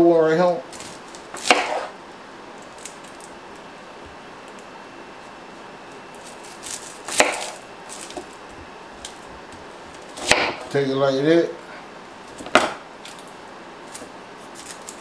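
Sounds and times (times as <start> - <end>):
knife cutting onion on board: 1.3 - 2.0, 6.5 - 8.3, 10.1 - 10.8.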